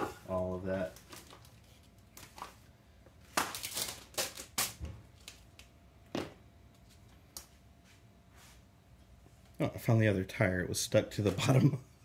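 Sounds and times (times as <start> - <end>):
paper and plastic rustling: 0.8 - 2.6.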